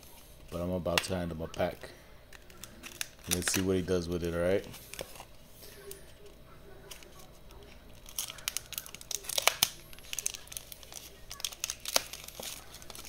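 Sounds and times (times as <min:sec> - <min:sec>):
packaging being torn open: 0:02.3 - 0:04.0, 0:06.8 - 0:13.0.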